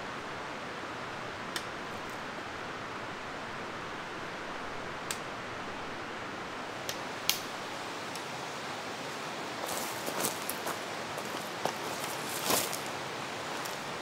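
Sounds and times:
stream rushing: 6.0s - 14.0s.

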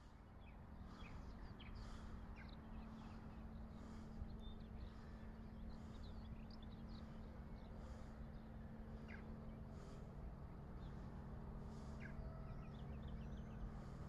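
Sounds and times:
small birds chirping: 0.0s - 14.0s
steady low hum: 0.0s - 14.0s.

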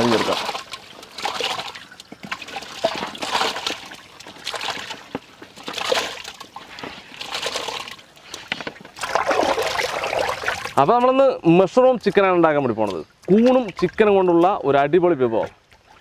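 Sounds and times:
chicken splashing into water: 0.0s - 8.0s, 9.0s - 10.8s.

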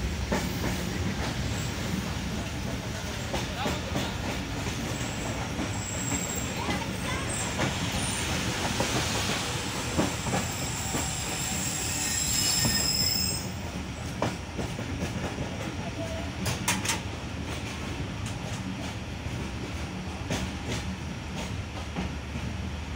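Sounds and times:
train rumble: 0.0s - 22.9s
high-pitched wheel squeal: 10.4s - 13.6s.

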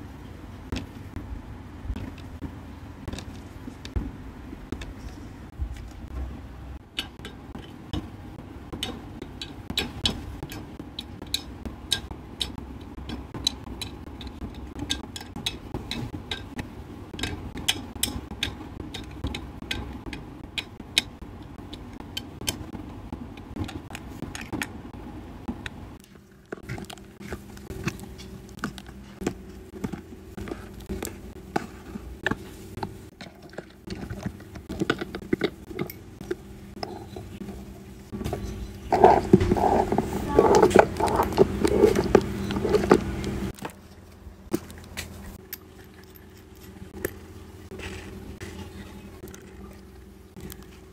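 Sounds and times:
low steady background hum: 0.0s - 50.9s.

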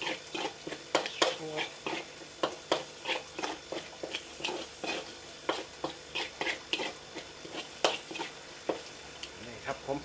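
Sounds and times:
metal spatula scraping wok: 0.0s - 8.9s
faint sizzle: 0.0s - 10.0s.

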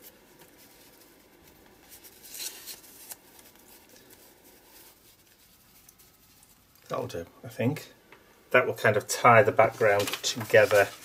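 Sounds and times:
paper pieces rustling: 9.7s - 11.0s.

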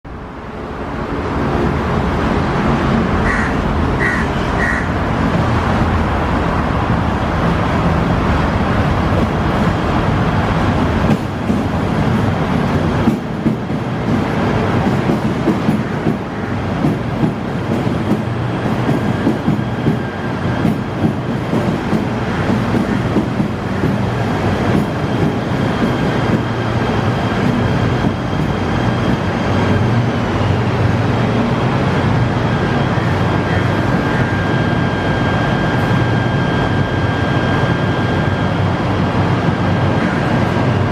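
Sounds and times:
train wheels rumbling on rail: 0.1s - 40.9s
faint high whine: 32.6s - 38.6s.

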